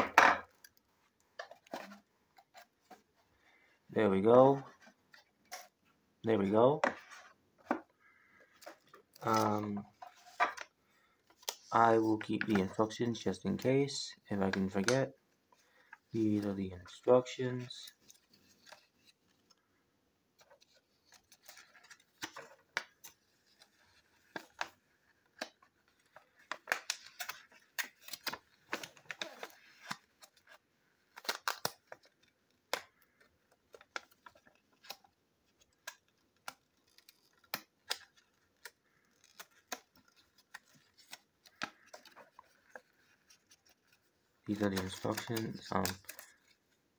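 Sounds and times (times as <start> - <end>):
paper rustling: 20.4 - 46.8.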